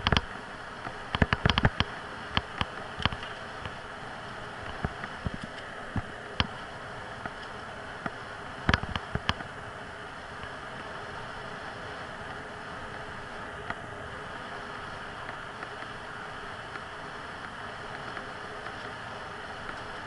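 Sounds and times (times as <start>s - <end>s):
sharp clicks and knocks from bike: 0.0s - 3.8s, 7.2s - 9.5s.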